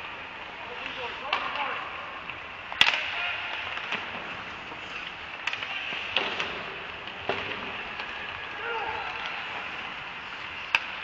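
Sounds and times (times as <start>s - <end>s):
hockey stick cracking puck: 2.7s - 11.0s.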